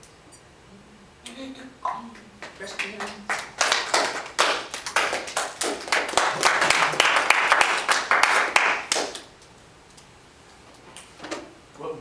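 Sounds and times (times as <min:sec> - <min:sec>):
people applauding: 0:02.4 - 0:09.3.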